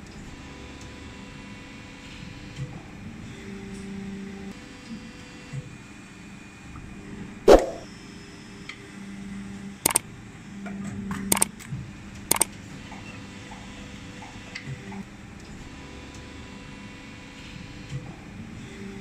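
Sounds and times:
sharp metallic clicks: 11.3s - 11.7s.

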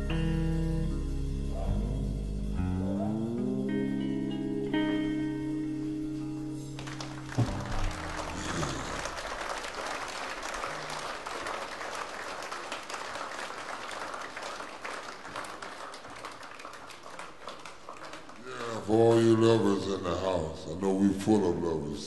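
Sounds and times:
blues band final chord: 0.0s - 9.3s
audience applauding: 6.7s - 20.1s.

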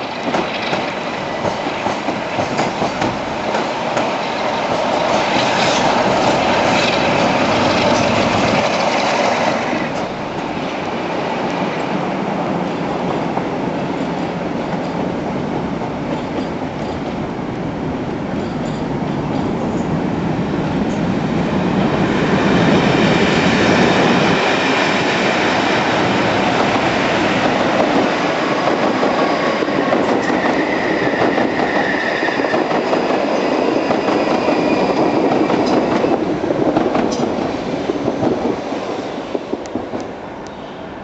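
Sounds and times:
train wheels clattering over joints: 0.1s - 10.6s
high squeal: 30.2s - 32.7s.

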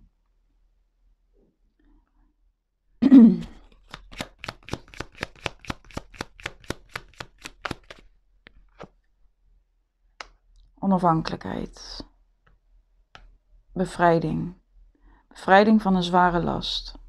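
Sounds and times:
cards being shuffled: 3.4s - 9.0s
cards snapping: 3.6s - 8.9s.

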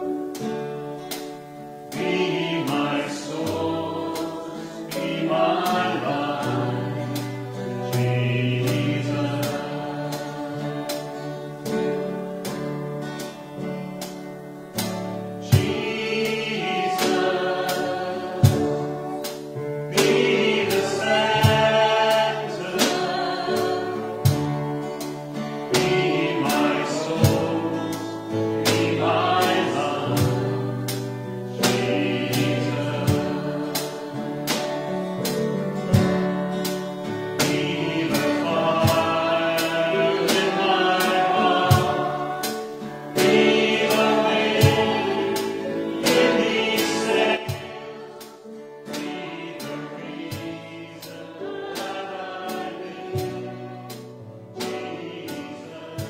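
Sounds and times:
acoustic guitar: 0.0s - 56.0s
congregation singing: 0.0s - 56.0s.

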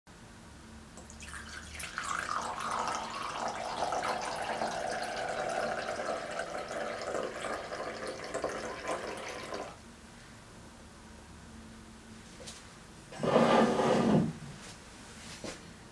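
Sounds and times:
coffee pouring into a ceramic cup: 1.0s - 9.8s.

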